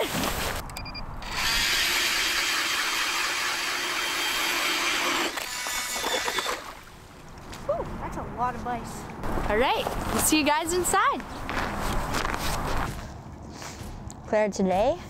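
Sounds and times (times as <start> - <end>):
ice auger grinding: 1.2 - 6.8.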